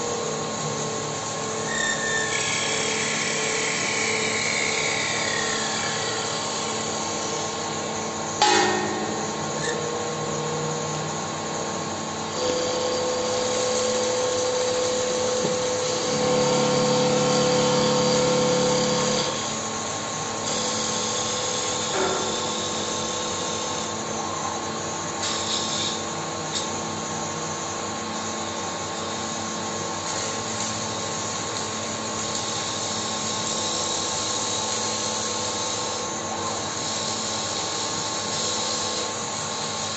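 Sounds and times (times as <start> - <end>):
steady machine whine: 0.0 - 25.0
sharp knock: 8.4 - 9.5
wood lathe cutting wood: 15.4 - 19.4.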